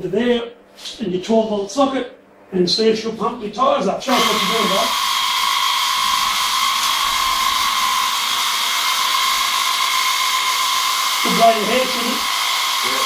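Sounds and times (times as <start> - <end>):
air compressor motor whine: 4.0 - 13.0.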